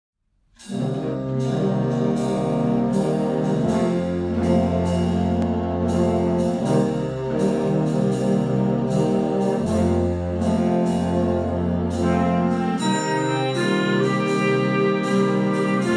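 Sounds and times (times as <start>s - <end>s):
brass chords: 0.6s - 15.9s
percussion beat: 0.6s - 15.9s
low bass line: 0.7s - 15.9s.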